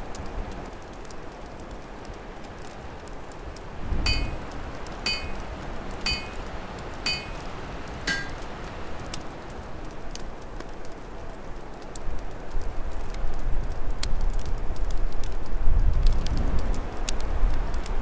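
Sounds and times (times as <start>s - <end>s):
open fire crackling: 0.0s - 18.0s
light ringing clinks: 4.1s - 8.5s.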